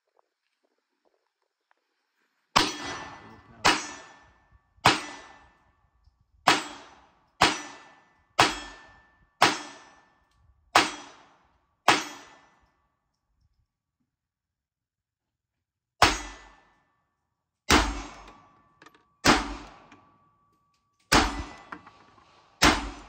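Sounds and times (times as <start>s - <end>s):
pistol shots: 2.6s - 5.5s, 6.5s - 10.1s, 10.8s - 11.3s, 11.9s - 12.5s, 17.7s - 18.5s, 19.2s - 20.0s, 21.1s - 21.9s, 22.6s - 23.0s.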